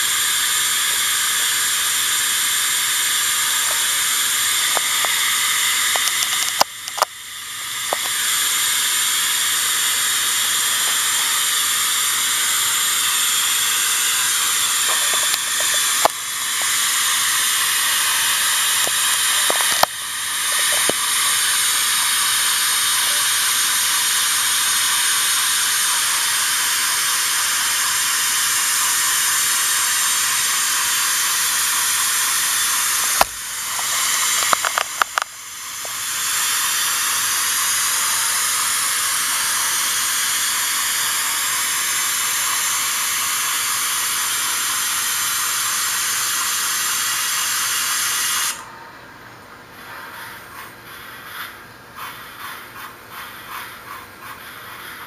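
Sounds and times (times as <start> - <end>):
steam hiss from speaker: 0.0 - 48.7
clicks: 4.6 - 7.1, 7.9 - 8.2, 18.8 - 21.0, 33.1 - 36.0.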